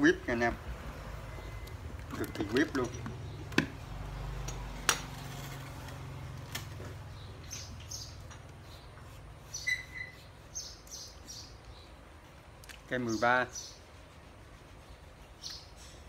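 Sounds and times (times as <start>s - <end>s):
short bird chirps: 9.4s - 11.5s.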